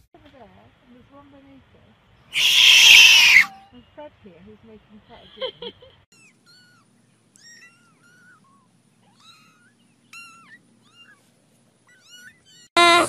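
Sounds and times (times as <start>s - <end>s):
kittens mewing: 2.4s - 3.7s, 6.1s - 13.0s.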